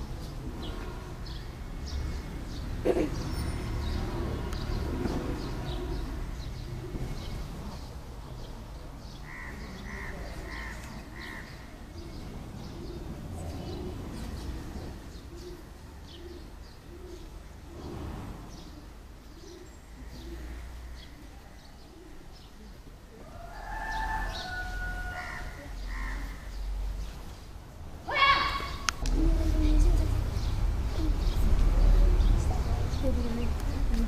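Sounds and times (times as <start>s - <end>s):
pigeons cooing: 3.9s - 7.8s, 9.3s - 22.5s
crow cawing: 9.3s - 11.6s, 23.8s - 26.5s.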